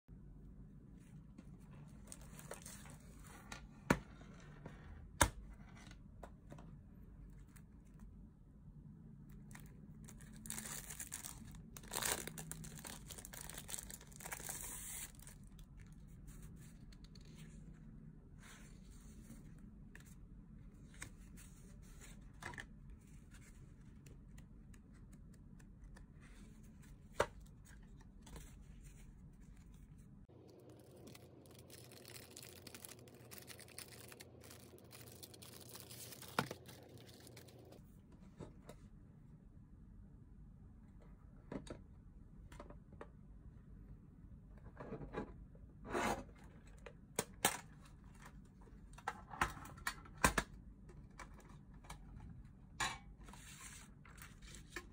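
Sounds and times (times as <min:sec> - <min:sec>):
plastic sleeve crinkling: 0:09.5 - 0:16.0, 0:30.4 - 0:37.8.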